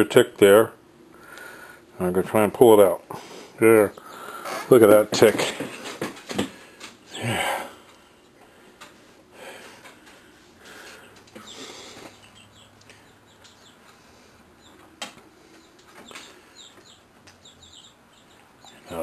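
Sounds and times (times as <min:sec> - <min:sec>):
small birds chirping: 0:03.8 - 0:04.6, 0:10.6 - 0:19.0.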